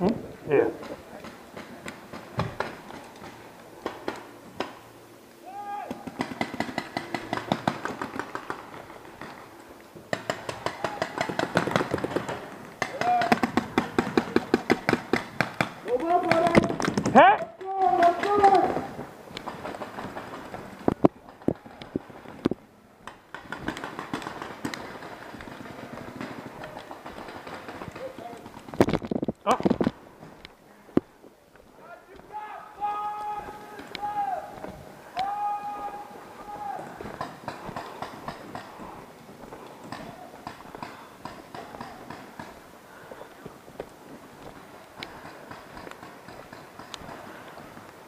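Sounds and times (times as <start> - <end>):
steady rustle with ticks: 0.0 - 5.4, 6.0 - 35.2, 35.8 - 48.0
paintball markers firing: 5.9 - 9.4, 10.1 - 28.9
running footsteps on forest litter: 6.0 - 28.8, 29.4 - 48.0.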